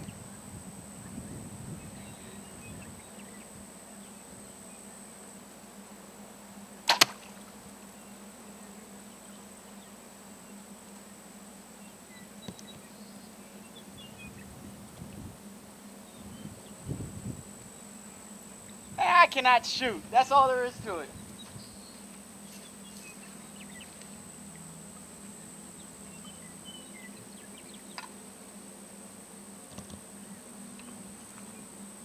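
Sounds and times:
faint outdoor background: 0.0 - 32.0
bowstring snap: 6.8 - 7.4.

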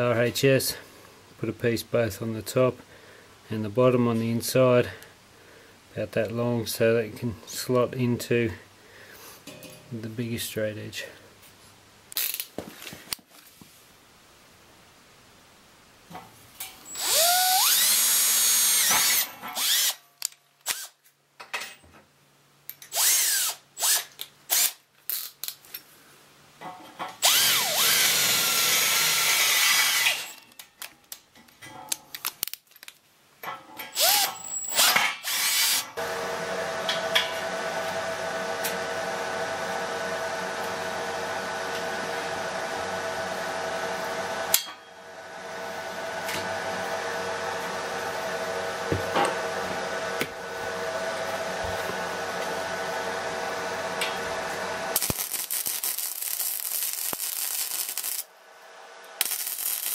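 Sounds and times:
steady hum with hiss: 0.0 - 59.9
electric drill boring through steel: 16.9 - 20.0, 20.6 - 20.9, 22.9 - 24.8, 27.2 - 30.4, 33.9 - 36.6, 54.9 - 58.3, 59.2 - 59.9.

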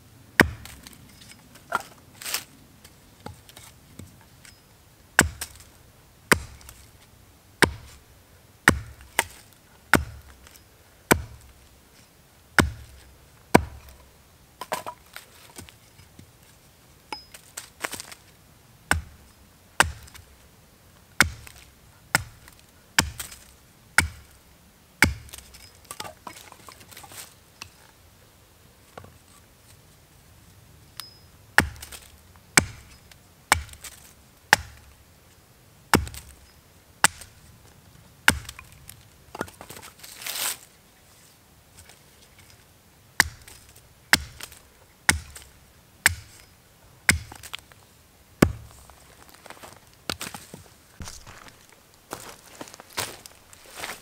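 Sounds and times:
axe chopping wood: 0.4 - 0.8, 5.2 - 5.7, 6.3 - 6.8, 7.6 - 8.0, 8.7 - 10.5, 11.1 - 11.6, 12.6 - 14.0, 18.9 - 19.2, 19.8 - 20.2, 21.2 - 23.4, 24.0 - 24.3, 25.0 - 26.4, 31.6 - 34.9, 35.9 - 36.4, 37.0 - 37.3, 38.3 - 38.7, 43.2 - 46.4, 47.1 - 47.6, 48.4 - 48.7.

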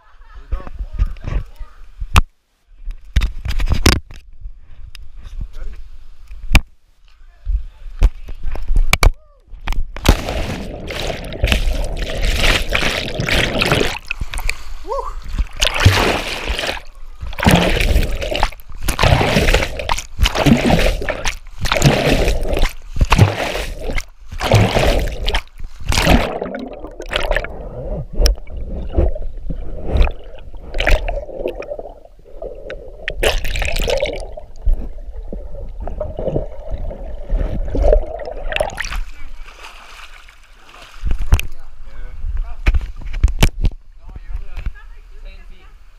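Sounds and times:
underwater bubbling and churning: 10.0 - 39.4.

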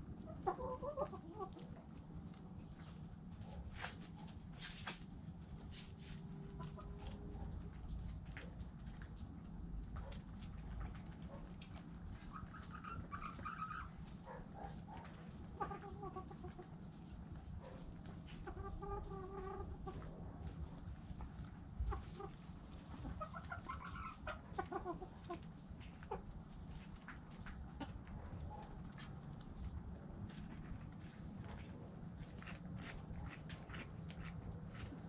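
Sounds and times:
hens clucking: 0.0 - 3.0, 5.7 - 29.2.

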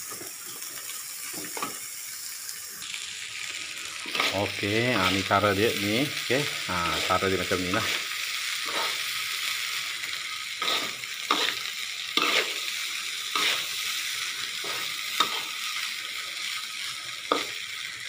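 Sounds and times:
rice sizzling in oil: 0.0 - 18.0
metal spatula scraping wok: 4.0 - 5.3, 7.0 - 9.1, 10.6 - 11.6, 12.2 - 12.7, 13.3 - 13.8, 14.6 - 15.6.

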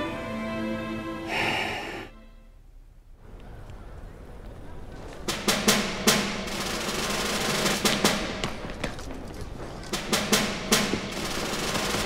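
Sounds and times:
snare drum rolls and hits: 5.3 - 8.7, 9.9 - 12.0.

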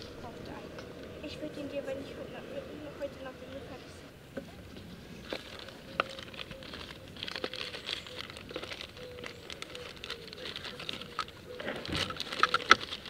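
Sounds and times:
plastic gloves rustling: 4.4 - 13.0
plastic bag crinkling: 5.1 - 13.0.

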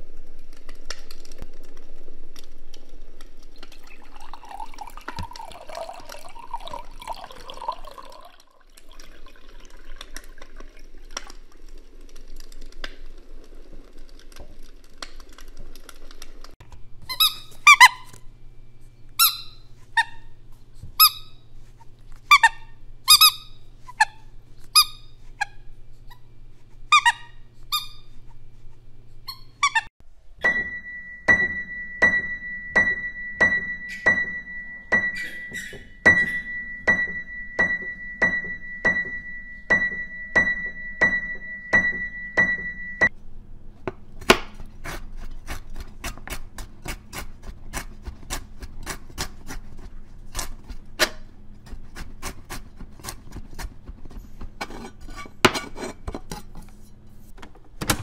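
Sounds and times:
crackling fire: 0.0 - 4.2, 9.2 - 16.6
water pouring between cups: 3.6 - 11.7
squeaky dog toy: 17.1 - 18.1, 19.2 - 20.3, 21.0 - 21.4, 22.3 - 24.2, 26.9 - 28.1, 29.3 - 29.9
piano notes: 30.4 - 43.1.

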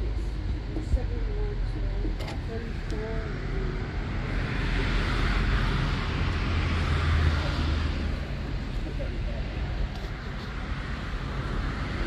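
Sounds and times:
vehicle passing: 3.2 - 9.6.

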